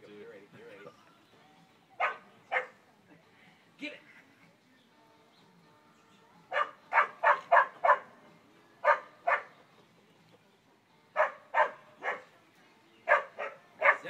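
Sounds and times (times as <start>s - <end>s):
dog barking: 2.0s - 2.8s, 6.5s - 8.2s, 8.8s - 9.6s, 11.1s - 12.4s, 13.0s - 14.0s.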